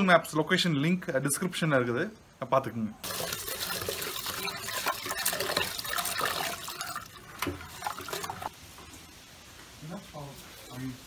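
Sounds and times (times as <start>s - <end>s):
tap water splashing into pot: 3.0s - 8.5s.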